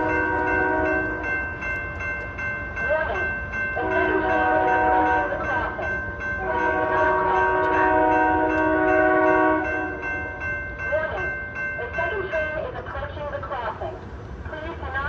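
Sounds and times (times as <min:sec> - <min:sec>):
train air horn blasts: 0:00.0 - 0:01.2, 0:03.8 - 0:05.3, 0:06.4 - 0:10.0.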